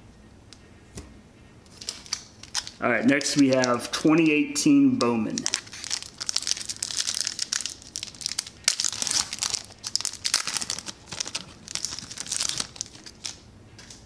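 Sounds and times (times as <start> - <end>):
wrapper crinkling and tearing: 1.7 - 4.1, 5.3 - 13.4.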